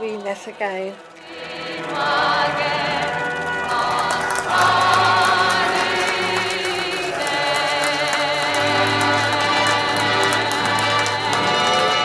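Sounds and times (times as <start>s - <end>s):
group of voices singing: 0.0s - 12.0s
steady musical accompaniment: 0.0s - 12.0s.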